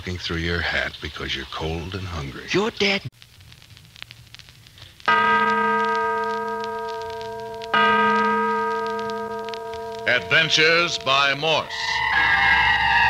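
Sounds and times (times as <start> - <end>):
deep bell-like chime: 5.2 - 12.0.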